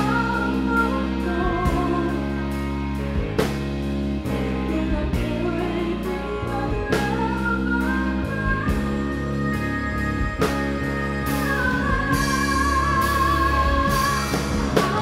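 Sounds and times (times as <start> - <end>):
live pop band playing: 0.0 - 15.0
woman singing long notes: 4.5 - 15.0.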